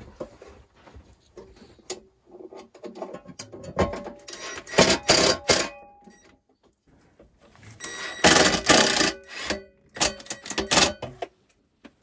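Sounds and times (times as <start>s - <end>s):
cordless drill driving a screw: 7.8s - 9.6s.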